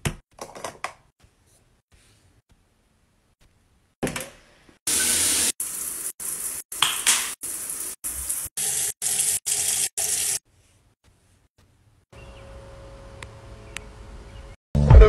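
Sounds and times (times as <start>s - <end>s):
water running from shower and tap: 4.9s - 10.4s.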